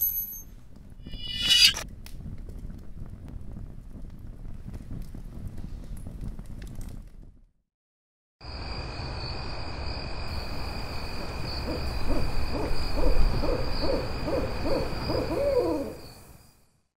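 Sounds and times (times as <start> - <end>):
faint high whine: 1.1 - 1.8
owl hooting: 11.5 - 16.2.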